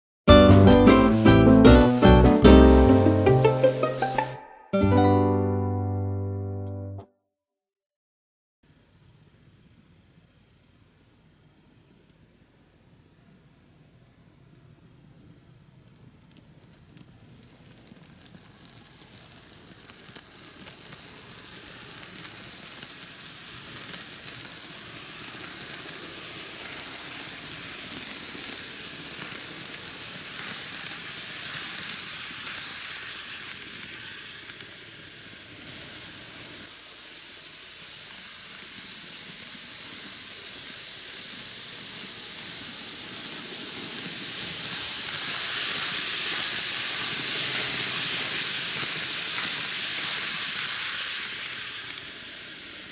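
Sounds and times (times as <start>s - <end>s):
model train wheels hissing on rails: 0.4s - 4.4s, 8.7s - 52.9s
faint clicks of wheels: 14.4s - 52.9s.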